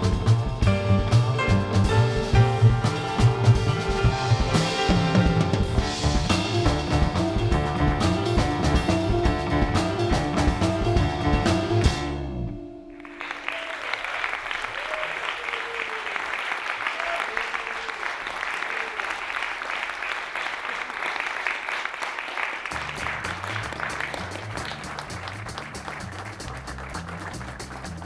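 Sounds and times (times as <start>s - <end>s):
music with low bass line: 0.0s - 12.6s
audience applauding: 12.9s - 28.0s.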